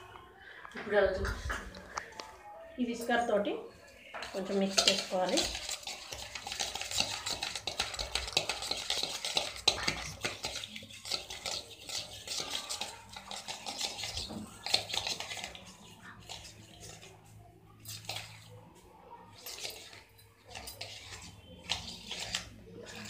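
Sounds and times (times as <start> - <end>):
whisk scraping metal bowl: 4.2 - 18.6, 19.3 - 23.0.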